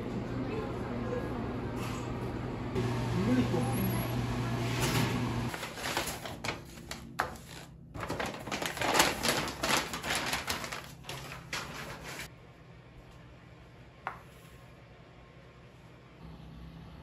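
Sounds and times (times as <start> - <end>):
paper bag rustling: 4.8 - 12.3.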